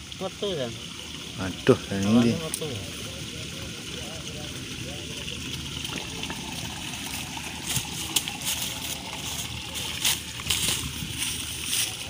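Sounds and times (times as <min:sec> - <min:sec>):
dry leaf litter rustling: 0:07.0 - 0:12.0.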